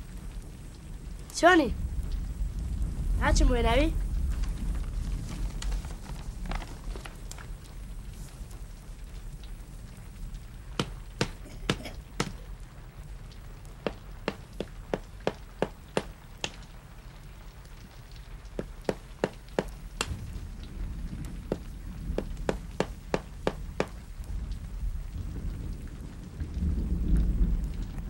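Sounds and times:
low rumble: 0.1 - 8.1, 19.4 - 28.0
sharp knocks: 10.8 - 12.4, 13.8 - 16.6, 18.6 - 20.3, 21.5 - 24.0.

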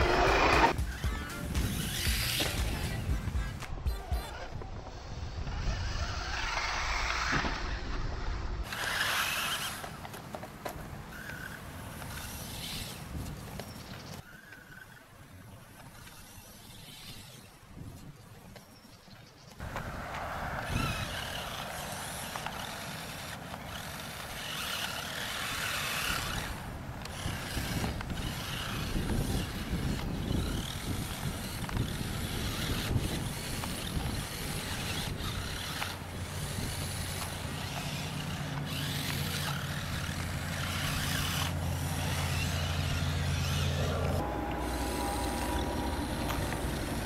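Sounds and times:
toy truck motor whirring: 0.0 - 47.0
steady low hum: 20.8 - 47.0.

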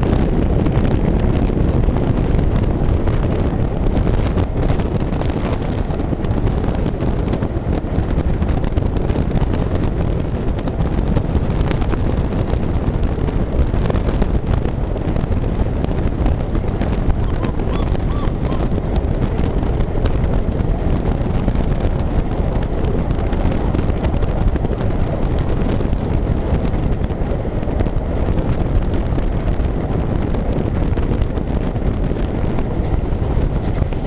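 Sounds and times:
train running on rails: 0.0 - 34.0
wind buffeting microphone: 0.0 - 34.0.

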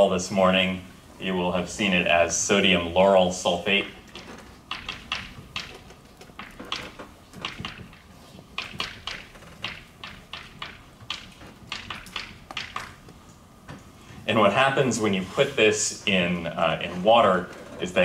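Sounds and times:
chalk tapping and scratching on blackboard: 4.7 - 13.2.

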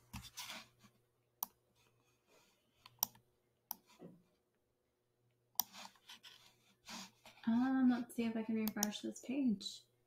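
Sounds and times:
computer mouse button clicking: 8.6 - 8.9.

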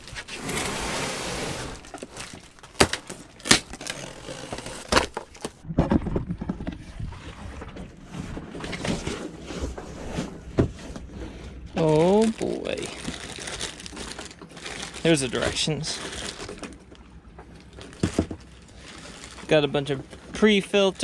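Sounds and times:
cardboard box rustling: 0.0 - 5.6
packing tape tearing off a box: 0.0 - 5.6.

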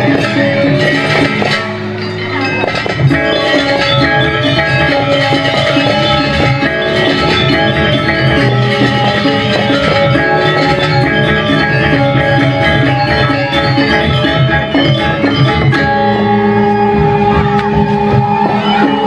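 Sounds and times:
gamelan ensemble playing: 0.0 - 19.0.

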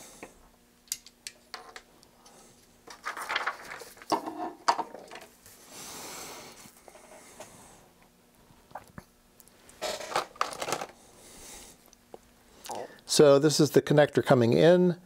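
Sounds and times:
paper rustling and sliding: 2.9 - 4.2.

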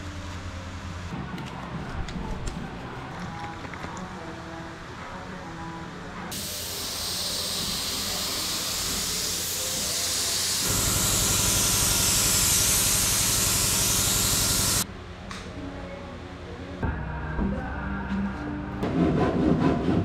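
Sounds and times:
paint spray gun hissing: 6.3 - 14.8.

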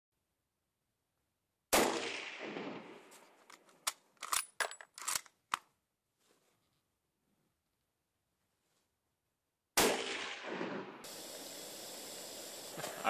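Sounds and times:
rifle shot echoing: 1.7 - 3.2, 9.8 - 11.2
rifle bolt clacking: 3.5 - 5.7.

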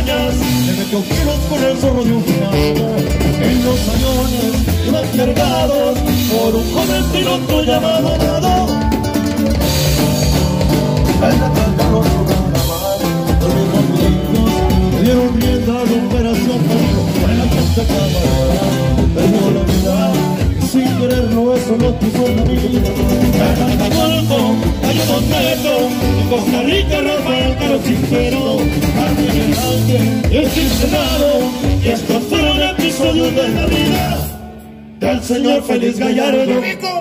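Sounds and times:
accordion melody: 0.0 - 36.6
band playing with steady beat: 0.0 - 37.0.

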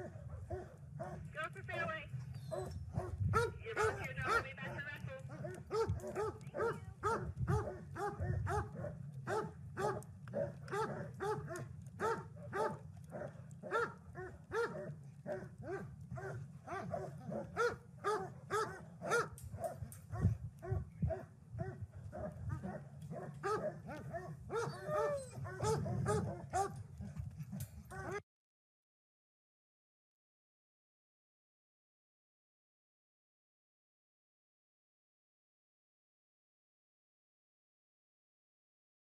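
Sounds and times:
dogs barking: 0.0 - 1.3, 2.4 - 28.2
low rumble: 0.2 - 13.6.

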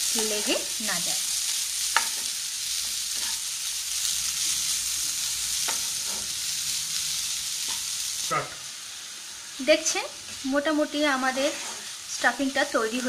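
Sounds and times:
coconut and sugar sizzling in pan: 0.0 - 13.0
spatula scraping a pan: 1.9 - 3.5, 5.6 - 6.4, 11.2 - 12.0.

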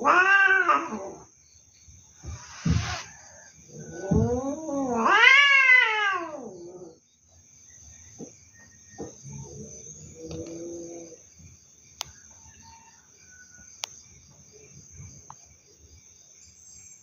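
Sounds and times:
cat yowling: 0.0 - 1.2, 2.3 - 3.1, 3.9 - 6.9
quieter lower cat yowl: 0.0 - 1.3, 2.3 - 3.1, 3.9 - 7.0.

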